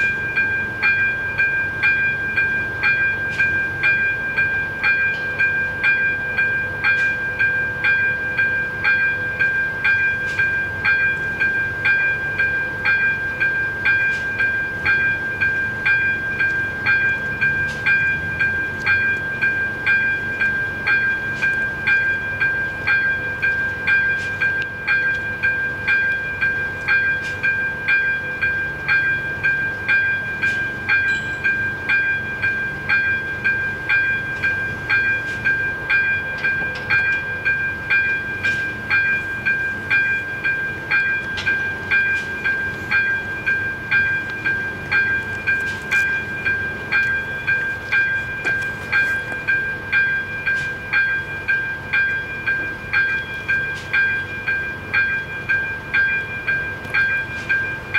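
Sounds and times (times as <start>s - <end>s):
level-crossing bell ringing: 0.0s - 57.9s.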